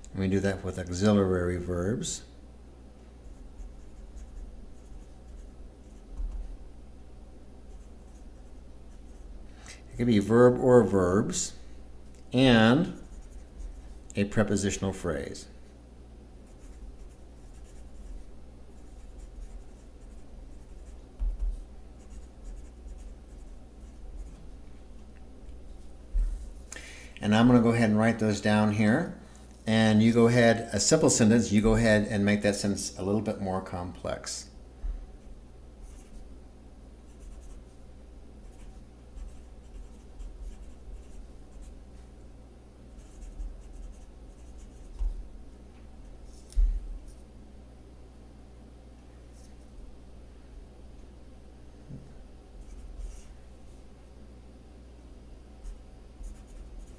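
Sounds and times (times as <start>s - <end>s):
low steady hum: 0.0s - 56.9s
pen scratching on paper: 13.0s - 13.8s, 16.5s - 18.1s, 43.0s - 44.9s, 55.6s - 56.9s.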